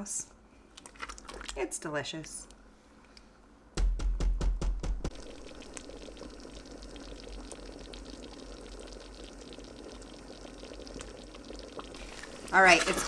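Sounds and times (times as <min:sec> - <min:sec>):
thick filling bubbling: 0:00.7 - 0:01.7, 0:05.0 - 0:13.0
loud knocks: 0:03.8 - 0:05.2.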